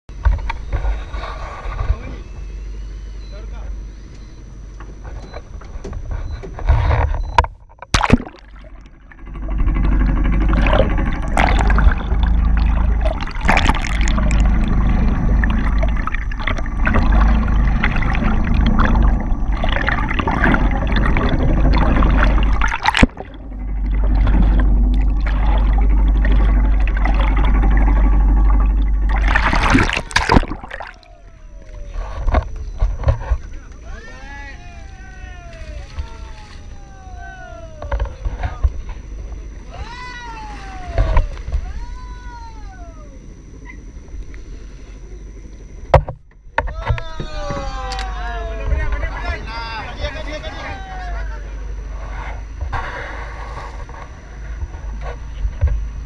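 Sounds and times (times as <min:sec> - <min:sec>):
underwater water rushing: 0:07.8 - 0:33.1.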